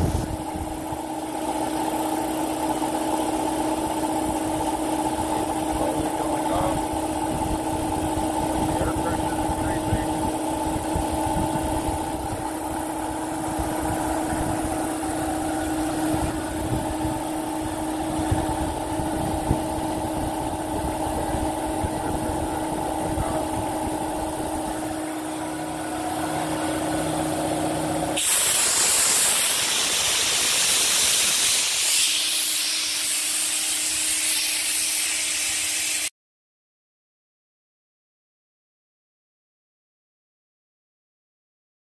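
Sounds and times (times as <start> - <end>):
air compressor humming: 0.0 - 36.1
compressor pump low pulsing: 0.0 - 36.1
loud hiss of escaping air: 28.2 - 36.1.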